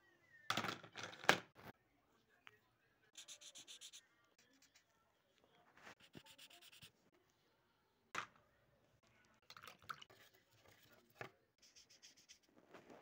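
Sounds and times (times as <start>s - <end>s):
scratching on paper: 3.2s - 4.9s, 5.9s - 7.0s, 10.2s - 13.0s.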